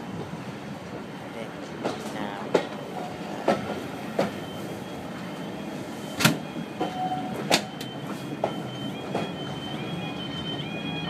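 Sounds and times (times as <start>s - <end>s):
railway carriage rolling: 0.0s - 11.0s.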